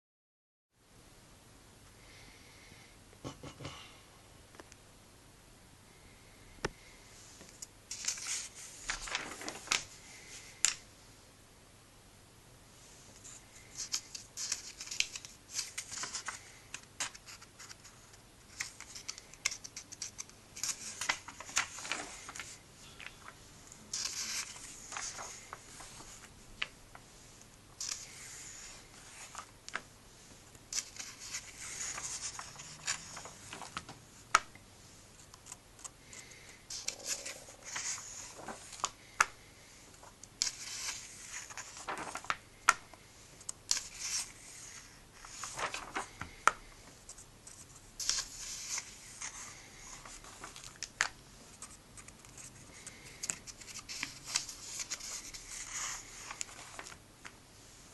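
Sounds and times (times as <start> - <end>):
paper pages rustling: 7.4 - 10.8, 13.1 - 29.9, 30.6 - 34.5, 35.2 - 57.9
pages snapping over: 7.5 - 9.9, 13.7 - 17.9, 18.5 - 26.8, 27.8 - 28.3, 30.7 - 34.5, 35.3 - 39.3, 40.4 - 44.3, 45.2 - 46.7, 48.0 - 57.4.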